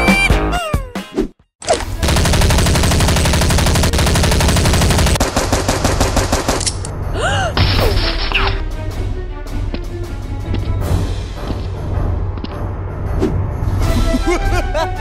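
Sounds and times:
machine-gun burst: 2.0 - 6.6.

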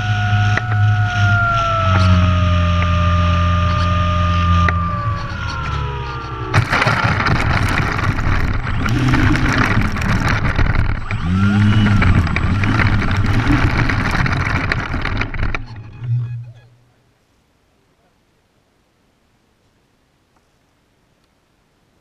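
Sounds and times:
electric motor whine: 0.0 - 16.8
loud rough noise: 0.0 - 16.8
model plane hitting grass: 6.5 - 15.7.

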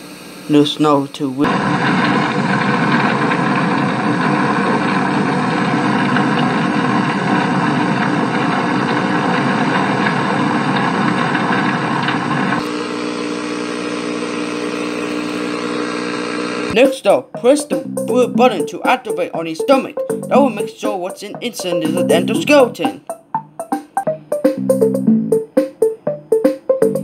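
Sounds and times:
motor running: 0.0 - 16.8.

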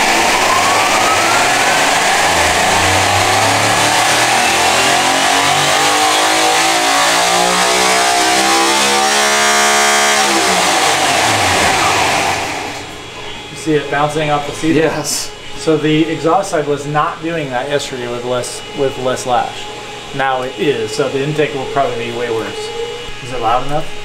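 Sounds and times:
engine spun by electric motor: 0.0 - 14.1.

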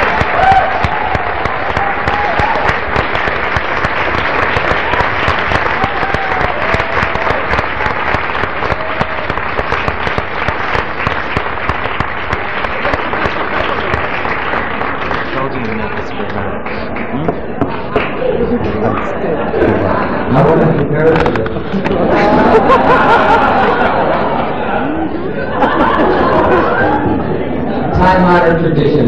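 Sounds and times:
audience applauding: 0.0 - 18.3.

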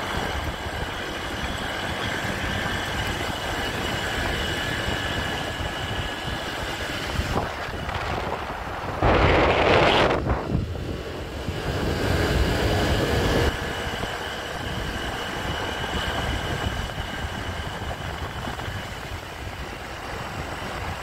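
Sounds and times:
motorcycle engine: 0.0 - 21.0
wind buffeting microphone: 0.0 - 21.0.

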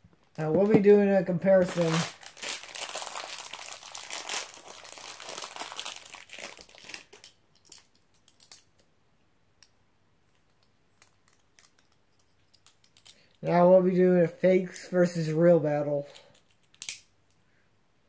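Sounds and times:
plastic packaging crinkling: 0.3 - 8.7.

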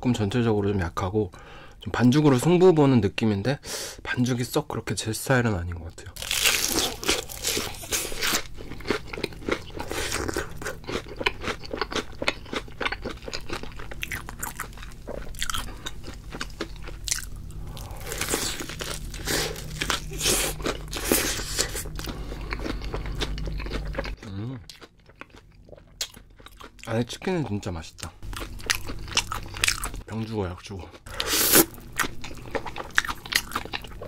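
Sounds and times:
crunchy chewing of fried chicken: 6.2 - 26.9, 28.2 - 30.0, 30.9 - 34.0.

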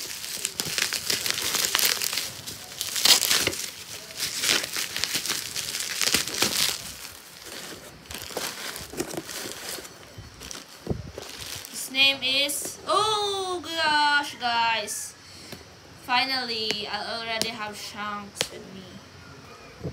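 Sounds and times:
bubble wrap crinkling: 0.0 - 12.1.

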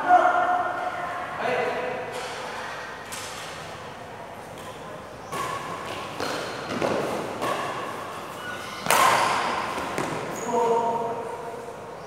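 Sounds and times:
rackets hitting shuttlecock: 4.4 - 10.4.

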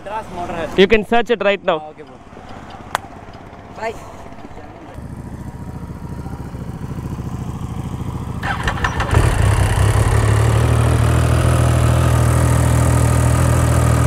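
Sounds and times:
motorcycle engine cranking and idling: 2.4 - 14.0.

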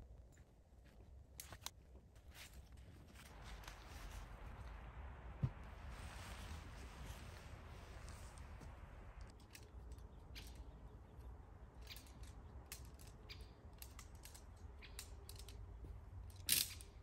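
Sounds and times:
low steady rumble: 0.0 - 17.0
rustle: 1.4 - 17.0
camping gear clicks: 11.7 - 17.0.

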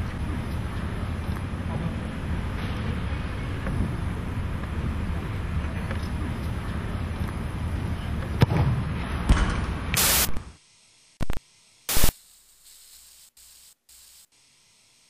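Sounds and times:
static hiss bursts: 9.9 - 15.0.

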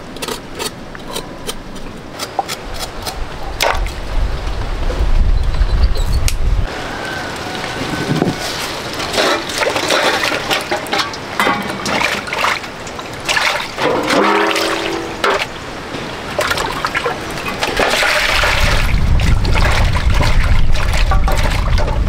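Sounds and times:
water splashing and trickling: 6.6 - 22.0.

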